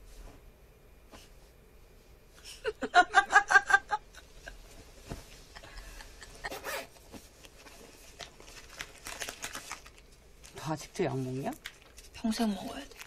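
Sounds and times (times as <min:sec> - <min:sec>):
soft rustling: 0:00.0 - 0:02.4, 0:04.3 - 0:13.0
women laughing: 0:02.4 - 0:04.7, 0:05.3 - 0:06.8.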